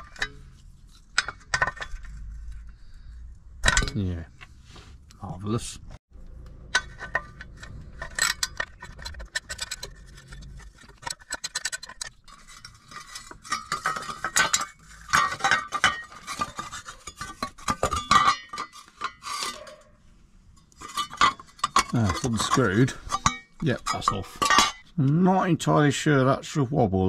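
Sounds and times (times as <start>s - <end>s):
metal hand tools clinking: 6.7s - 19.8s, 20.6s - 25.0s.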